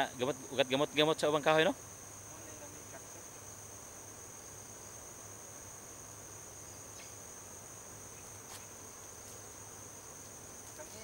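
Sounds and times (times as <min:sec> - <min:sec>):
insects droning: 0:00.0 - 0:11.0.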